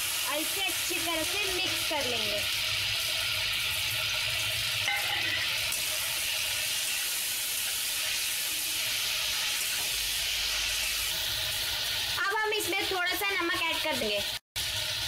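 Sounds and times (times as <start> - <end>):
vegetables sizzling in hot fat: 0.0 - 15.0.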